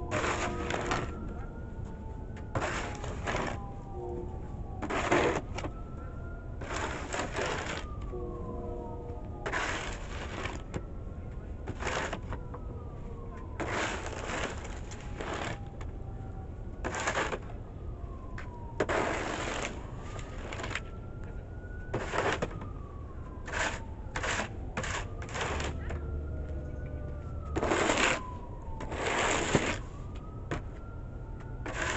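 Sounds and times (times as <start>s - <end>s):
shovel scraping snow off concrete: 0.0s - 1.1s, 2.6s - 3.6s, 4.8s - 5.5s, 6.6s - 7.8s, 9.5s - 10.6s, 11.7s - 12.3s, 13.6s - 15.6s, 16.8s - 17.4s, 18.8s - 19.8s, 22.0s - 22.5s, 23.5s - 25.8s, 27.6s - 28.2s, 28.9s - 29.8s, 31.7s - 31.9s.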